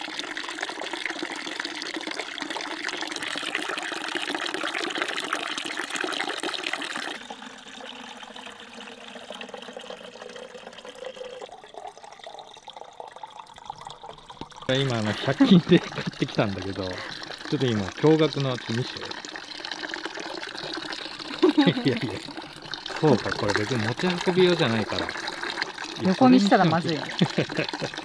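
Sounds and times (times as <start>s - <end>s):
water splashing onto wooden boards: 14.7s - 28.0s.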